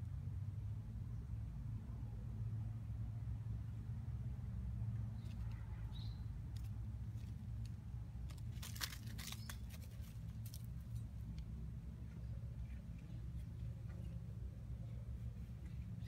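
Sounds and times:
cat scuffling in dry leaves: 6.7 - 11.3.

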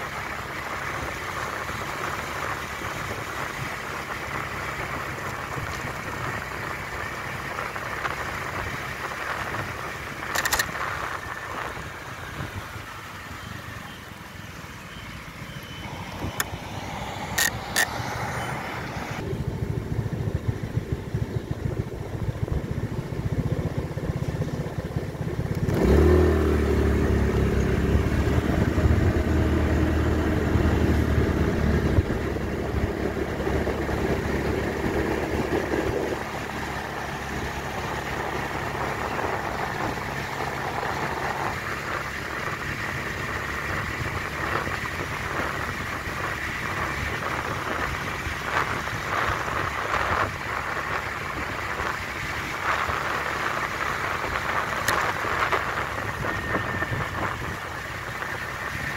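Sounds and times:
road and wind noise: 0.0 - 58.9
vehicle engine accelerating: 14.9 - 58.9.

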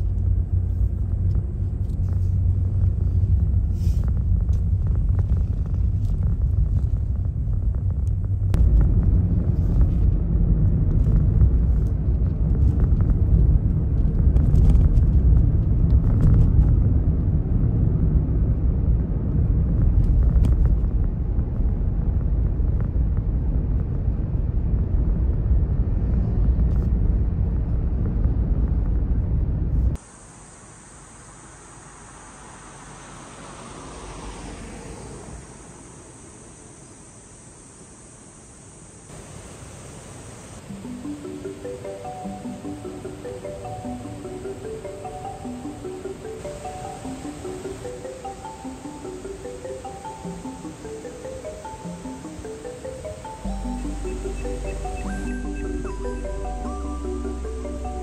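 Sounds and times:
car engine and road rumble: 0.0 - 58.0
steady high hiss: 30.0 - 58.0.

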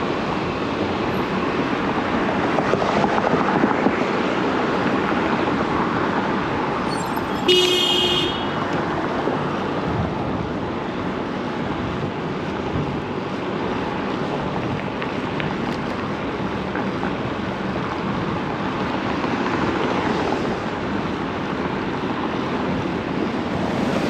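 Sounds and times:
city traffic: 0.0 - 24.0
car horn: 6.9 - 8.6.

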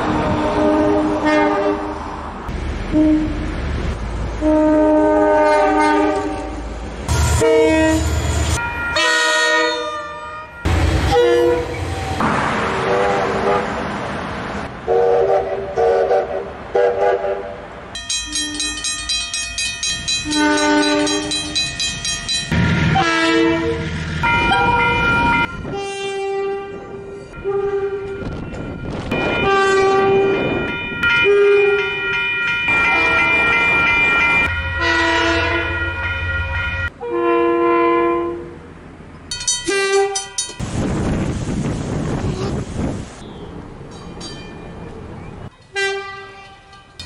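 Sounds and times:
train horn blasts: 0.2 - 2.1, 2.9 - 3.5, 4.4 - 13.8, 14.9 - 17.6, 20.2 - 21.6, 22.9 - 28.3, 29.1 - 30.6, 31.2 - 32.0, 34.8 - 36.0, 36.8 - 38.6, 39.7 - 40.4, 45.7 - 47.0.

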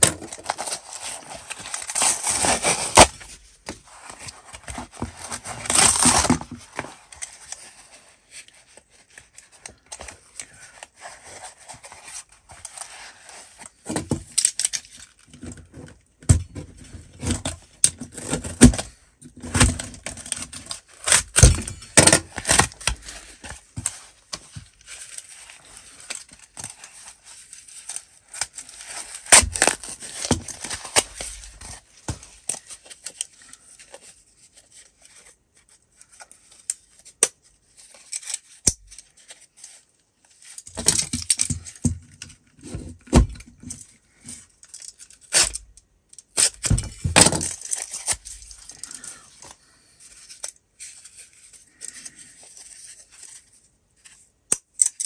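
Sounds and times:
cover material tearing: 0.0 - 7.6, 18.0 - 23.9, 25.1 - 33.7.

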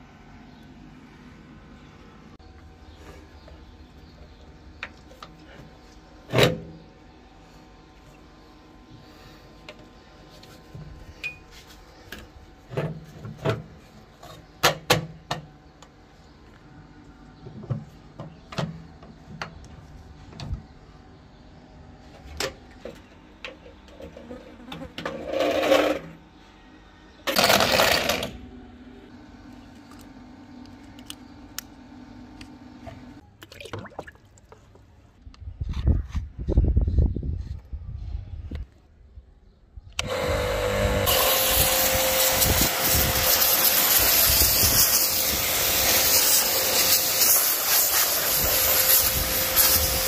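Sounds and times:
short bursts of hiss: 41.1 - 50.0.

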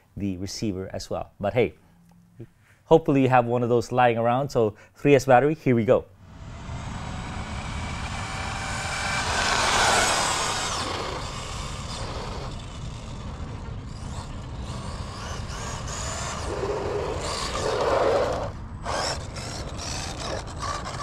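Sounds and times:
rc truck electric motor and tyres: 6.2 - 21.0.

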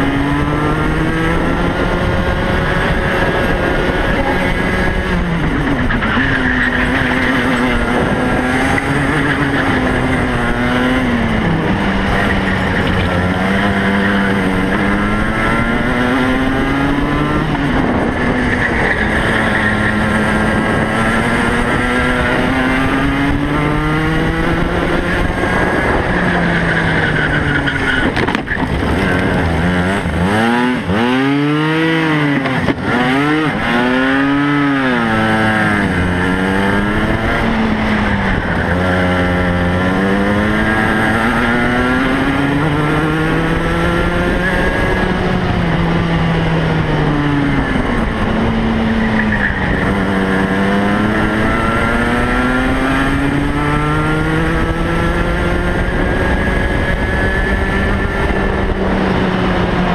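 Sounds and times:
kart engine revving: 0.0 - 59.9.

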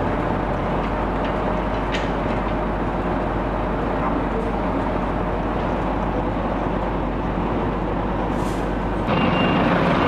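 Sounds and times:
fire engine running: 0.0 - 10.0
high beep: 9.1 - 9.7.

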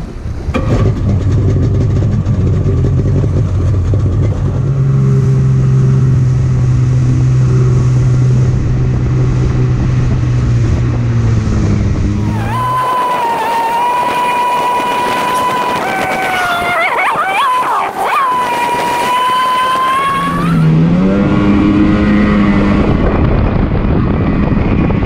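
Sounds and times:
watercraft engine accelerating: 0.0 - 25.0
water spray rushing along hull: 4.6 - 23.0.

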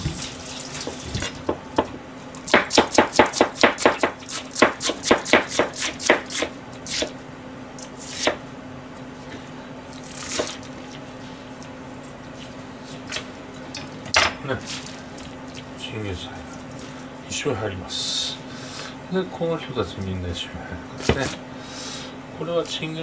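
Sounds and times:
knife chopping on plastic cutting board: 0.9 - 6.5.

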